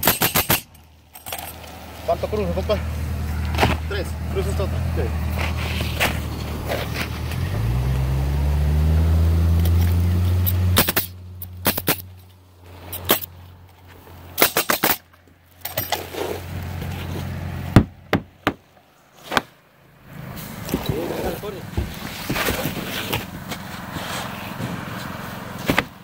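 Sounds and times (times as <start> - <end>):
nail gun firing pops: 0.0 - 0.8
low motor hum: 1.4 - 14.4.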